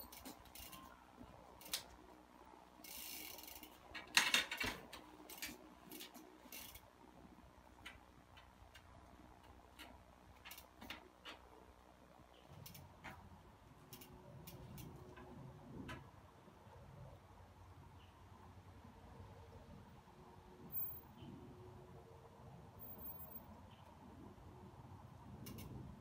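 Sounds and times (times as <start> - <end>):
bicycle freehub ratchet ticking: 0.0 - 0.9, 1.6 - 2.0, 2.8 - 6.9, 13.8 - 15.0.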